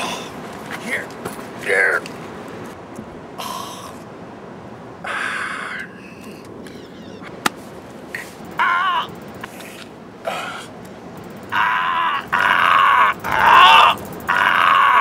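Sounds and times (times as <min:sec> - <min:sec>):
man wailing in pain: 0:08.6 - 0:09.2, 0:11.5 - 0:15.0.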